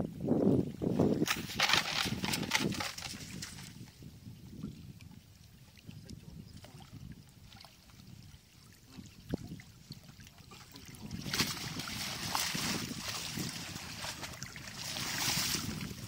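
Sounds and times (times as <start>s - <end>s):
water splashing and sloshing: 0.7s - 16.0s
water running off net: 1.2s - 3.7s, 10.5s - 16.0s.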